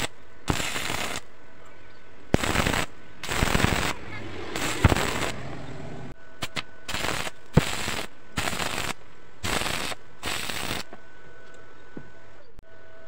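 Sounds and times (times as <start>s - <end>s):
welding arc crackling: 0.0s - 1.4s, 2.3s - 5.7s, 6.4s - 11.0s.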